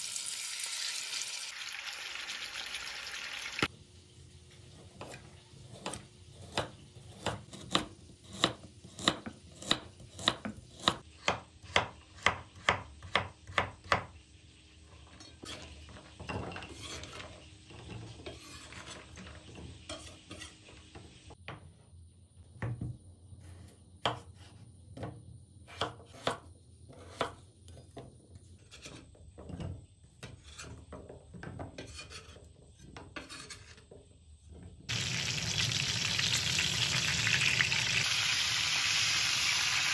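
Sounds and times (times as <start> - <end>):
knife chopping on cutting board: 4.9 - 14.1, 24.0 - 24.3, 25.7 - 27.4
slices scraped across board: 31.8 - 33.9.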